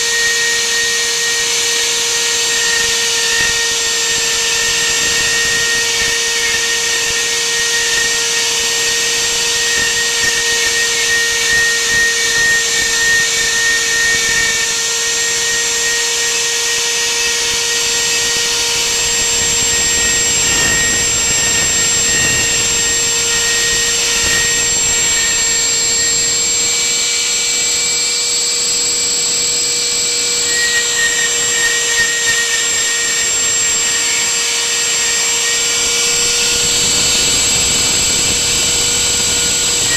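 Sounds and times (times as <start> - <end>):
router spindle whine: 0.0 - 39.9
bit cutting wood hiss: 28.6 - 39.9.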